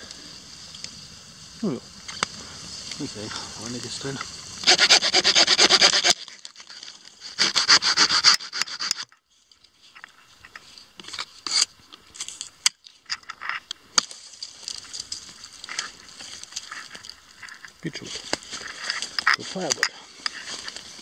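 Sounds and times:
close rubbing and scraping: 1.6 - 9.2, 10.4 - 11.7, 15.6 - 21.0.

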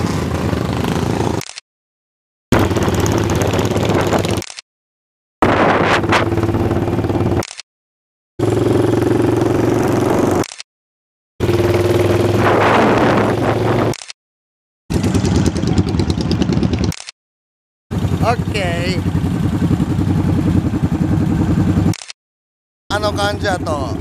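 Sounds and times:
motorcycle engine running: 0.0 - 1.4, 2.5 - 4.5, 5.4 - 7.5, 8.4 - 10.5, 11.4 - 13.9, 14.9 - 17.0, 17.9 - 22.0, 22.9 - 24.0
wind rush on microphone: 2.6 - 4.4, 5.4 - 6.6, 11.9 - 13.9.

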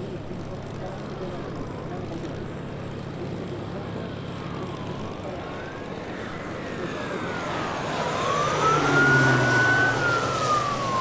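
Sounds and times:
turboprop aircraft engine drone: 0.0 - 11.0
faint siren wailing: 4.2 - 11.0.

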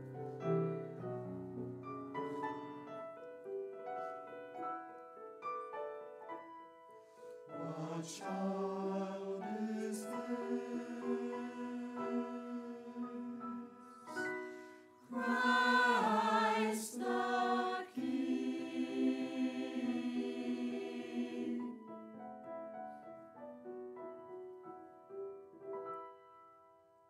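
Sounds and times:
choir singing a hymn: 7.6 - 14.2, 15.1 - 21.9.

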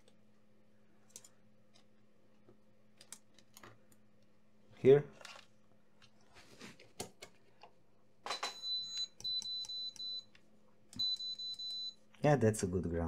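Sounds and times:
multimeter continuity beeping: 8.3 - 10.3, 11.0 - 12.0.

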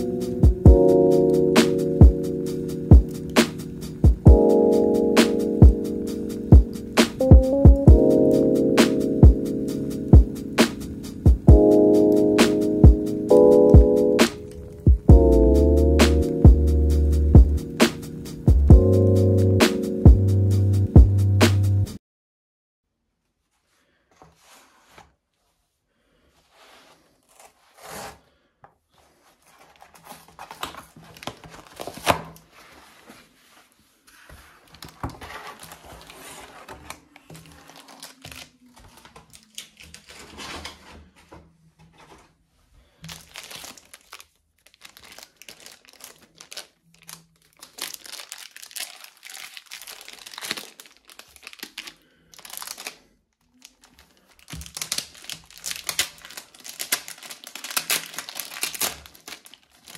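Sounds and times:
plastic shrink wrap crinkling: 29.2 - 32.9, 34.1 - 40.8, 42.9 - 59.9
cardboard mailer tearing: 54.4 - 59.9.

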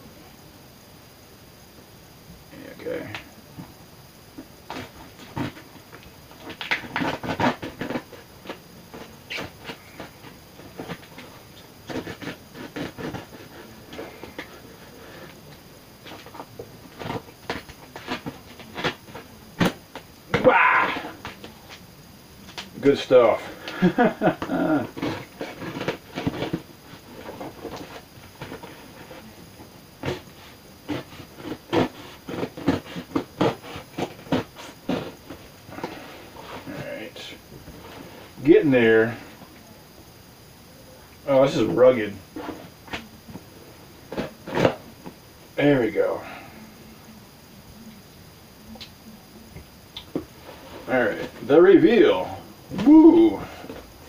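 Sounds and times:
duct tape tearing and crackling: 4.6 - 21.8, 23.5 - 29.4, 30.0 - 36.8, 44.0 - 45.1.

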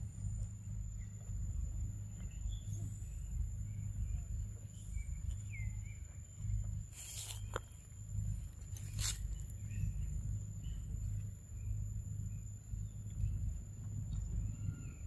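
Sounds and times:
high insect drone: 0.0 - 15.0
low rumble: 0.0 - 15.0
crackling rustle: 6.9 - 9.7.

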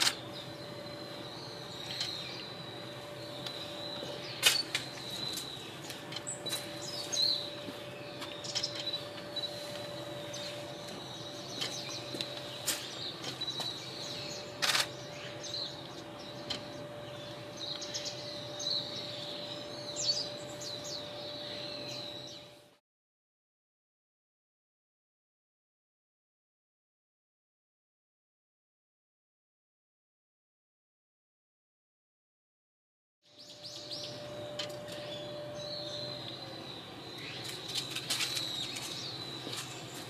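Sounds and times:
magpies chirping: 0.0 - 22.4, 33.4 - 40.0
faint steady hum: 0.0 - 22.8, 33.3 - 40.0
sharp clicks: 14.6 - 14.9.

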